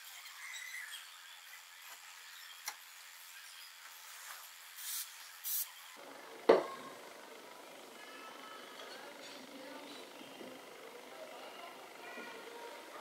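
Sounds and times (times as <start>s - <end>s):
aerosol spray can hissing: 4.8s - 5.7s.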